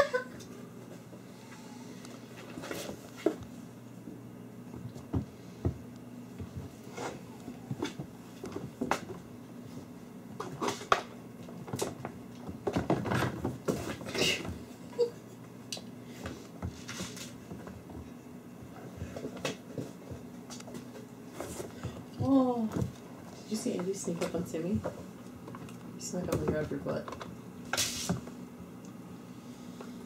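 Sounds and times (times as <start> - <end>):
kittens scuffling on wooden floor: 16.1 - 27.0.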